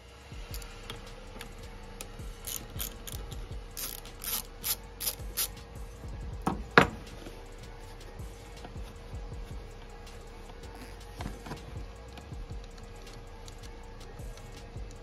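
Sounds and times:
socket wrench clicking: 0.5 - 5.6.

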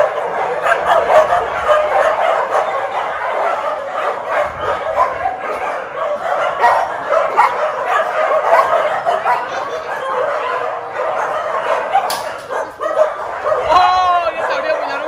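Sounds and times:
many dogs barking and yipping: 0.0 - 15.0.

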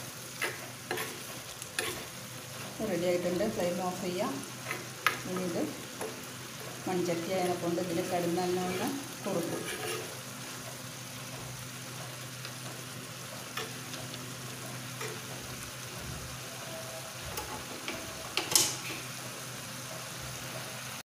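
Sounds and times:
low sizzle from pot: 0.0 - 21.0
spoon scraping clay pot: 0.4 - 2.1, 9.5 - 10.2.

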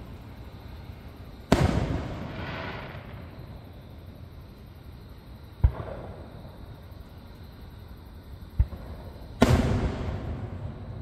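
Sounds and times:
firework burst echo: 1.5 - 3.7, 8.6 - 11.0.

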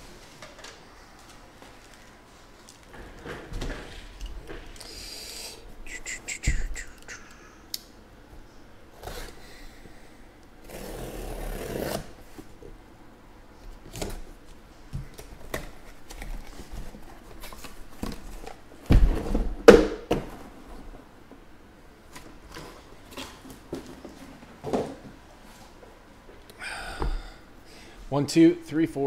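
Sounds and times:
packing tape slit and peeled: 10.6 - 12.1.

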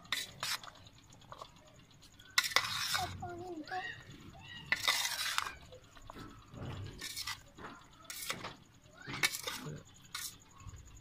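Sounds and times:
metal spoon scraping steel platter: 0.0 - 1.4, 2.3 - 3.2, 4.6 - 5.8, 6.8 - 7.5, 8.1 - 10.4.

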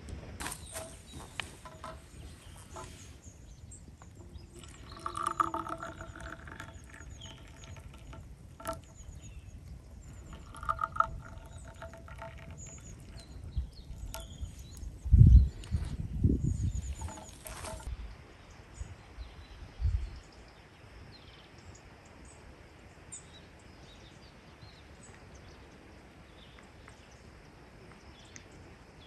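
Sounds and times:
birds chirping faintly: 0.4 - 29.0
tea pouring into glass: 4.0 - 14.8, 16.7 - 17.9.

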